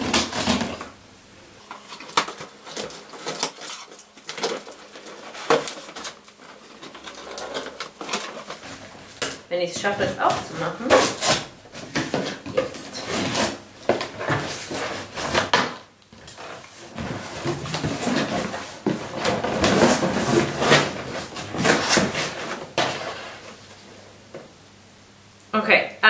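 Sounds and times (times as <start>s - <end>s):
box contents rustling: 1.6s - 23.6s
cardboard box flaps scraping: 16.4s - 23.5s.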